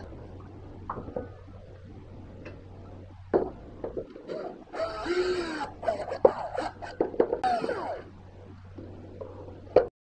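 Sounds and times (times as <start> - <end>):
faint low hum: 0.0 - 9.9.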